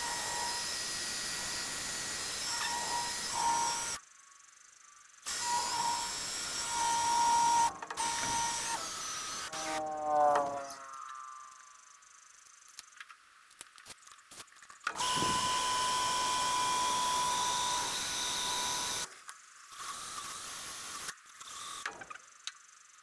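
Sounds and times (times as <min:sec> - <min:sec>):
power drill whining: 0:00.0 - 0:04.0, 0:05.2 - 0:11.2, 0:14.9 - 0:19.1, 0:19.7 - 0:22.0.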